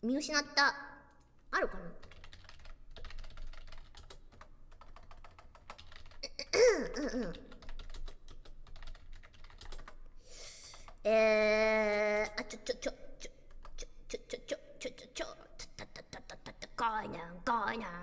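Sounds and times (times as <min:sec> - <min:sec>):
keyboard typing: 0:02.0 - 0:14.2
woman murmuring: 0:06.2 - 0:07.5.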